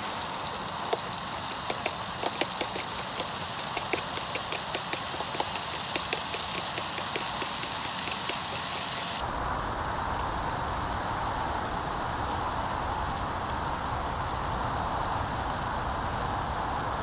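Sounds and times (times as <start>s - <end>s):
fork whisking eggs in a bowl: 0.4s - 9.2s.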